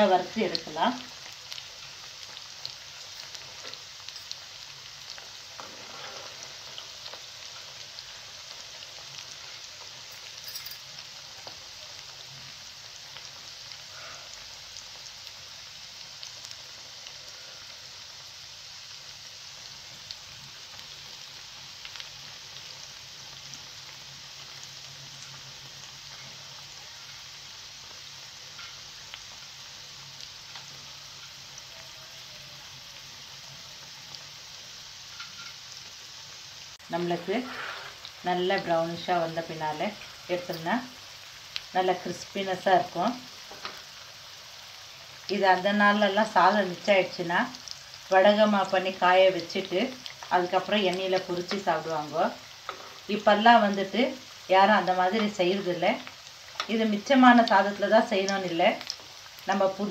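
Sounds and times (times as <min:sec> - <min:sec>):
deep-frying sizzle: 0:00.0 - 0:59.9
oil crackling and popping: 0:00.1 - 0:59.9.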